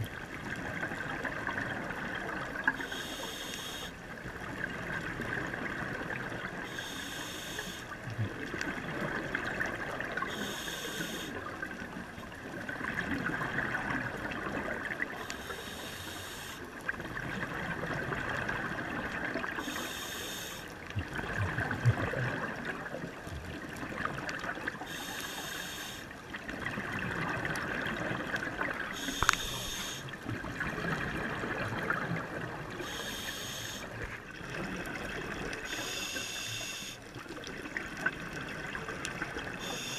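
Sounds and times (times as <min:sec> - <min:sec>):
exhaled bubbles underwater: 0:00.0 - 0:07.0, 0:07.7 - 0:15.9, 0:16.6 - 0:25.5, 0:26.1 - 0:39.9
regulator breathing hiss: 0:02.8 - 0:03.9, 0:06.6 - 0:07.9, 0:10.3 - 0:11.4, 0:15.3 - 0:16.6, 0:19.6 - 0:20.7, 0:24.9 - 0:26.1, 0:29.0 - 0:30.1, 0:32.8 - 0:33.9, 0:35.7 - 0:37.0, 0:39.6 - 0:39.9.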